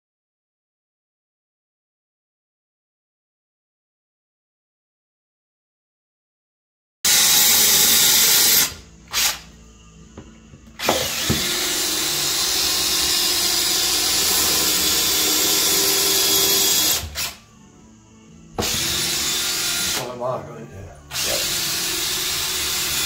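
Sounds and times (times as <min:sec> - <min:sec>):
cordless drill boring: 0:07.1 - 0:09.5, 0:10.8 - 0:17.4, 0:18.6 - 0:20.2, 0:21.1 - 0:23.0.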